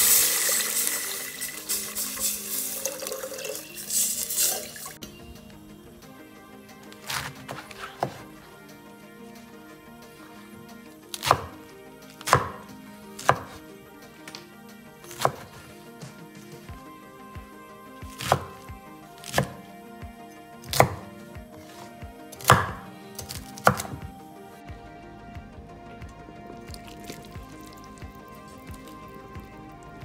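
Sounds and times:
soft background music: 0:00.0 - 0:30.0
knife chopping on wooden board: 0:11.2 - 0:11.5, 0:12.2 - 0:12.6, 0:13.2 - 0:13.6, 0:15.2 - 0:15.6, 0:18.1 - 0:18.6, 0:19.2 - 0:19.6, 0:20.7 - 0:21.1, 0:22.4 - 0:24.0.

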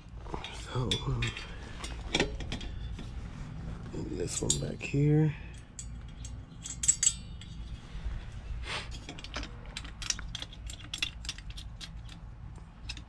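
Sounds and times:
hand tools clinking on metal: 0:04.2 - 0:07.6.

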